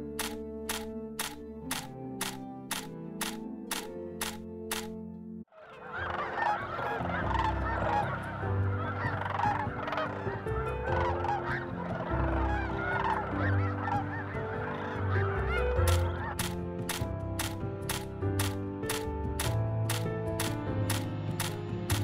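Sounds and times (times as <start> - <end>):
flock of geese honking: 5.5 - 16.5.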